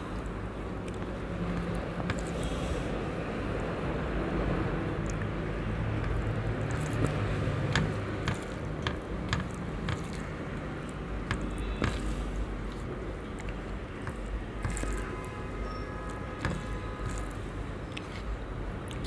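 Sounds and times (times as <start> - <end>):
fingers squishing food: 5.0 - 19.0.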